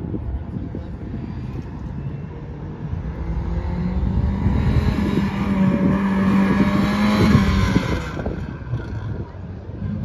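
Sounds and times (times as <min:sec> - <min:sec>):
car engine revving high: 0:03.2 - 0:08.5.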